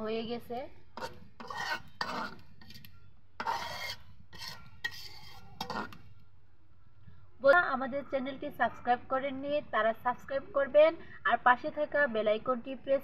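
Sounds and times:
metal spatula scraping in pan: 1.0s - 6.1s.

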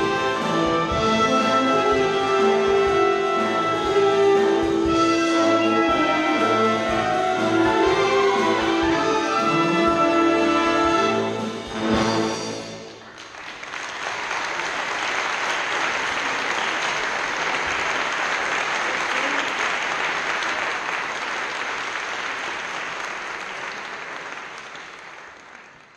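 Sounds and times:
audience applauding: 12.8s - 25.9s.

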